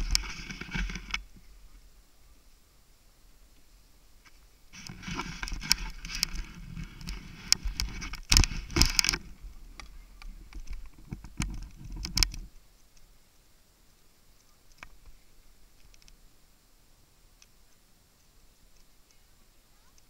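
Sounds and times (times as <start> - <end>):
ski clicks and knocks: 0.0 - 1.5, 4.2 - 13.0
skis scraping over snow: 0.0 - 1.8, 4.3 - 12.5.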